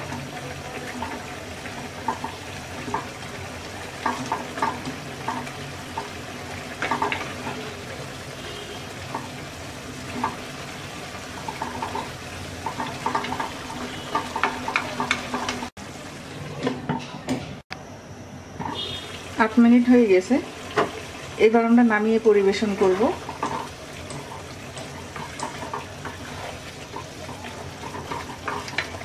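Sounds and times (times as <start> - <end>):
curry bubbling and popping: 0.0 - 15.8, 22.5 - 29.0
wooden spatula stirring: 22.5 - 29.0.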